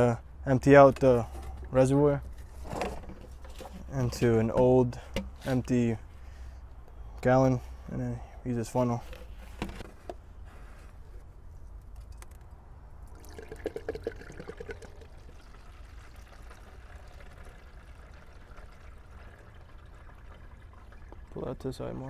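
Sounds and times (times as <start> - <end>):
fluid trickling into a jug: 13.0 - 22.0
liquid gurgle: 13.1 - 21.8.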